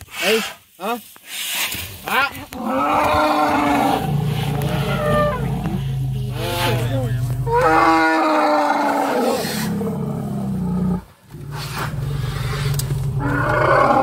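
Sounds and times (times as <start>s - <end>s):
elephants trumpeting: 1.4s - 14.0s
low engine hum: 3.6s - 7.9s.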